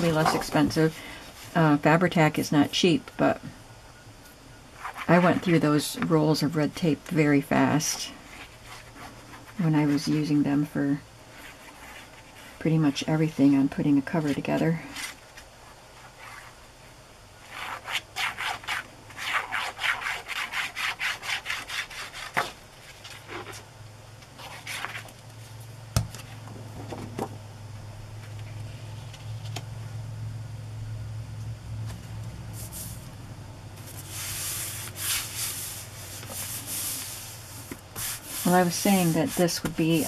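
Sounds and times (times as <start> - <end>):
hands rubbing paper and fabric: 32.5 - 33.1, 33.8 - 40.0.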